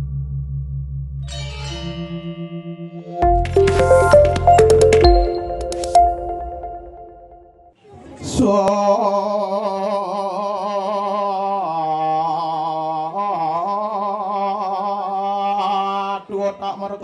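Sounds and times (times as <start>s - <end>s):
man singing a long note: 8.5s - 17.0s.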